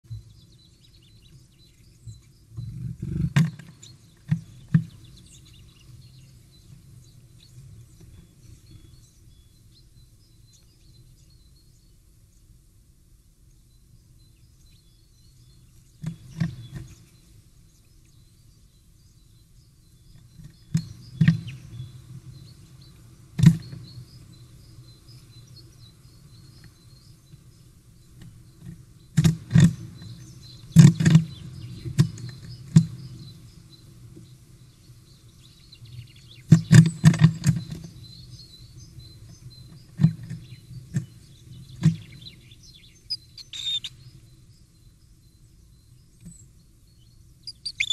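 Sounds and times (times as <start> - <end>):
faint high bird chirps: 30.0 - 47.9.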